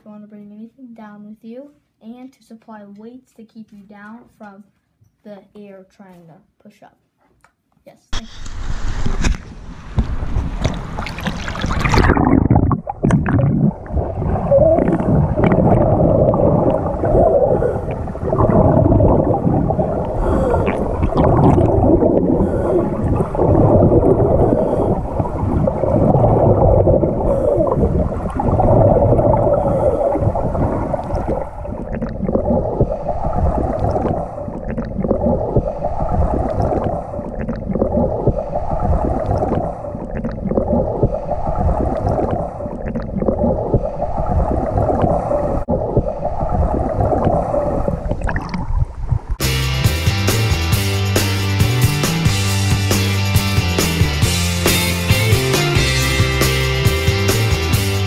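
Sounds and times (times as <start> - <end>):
water splash: 8.2 - 49.4
underwater rushing and bubbling: 8.2 - 58.0.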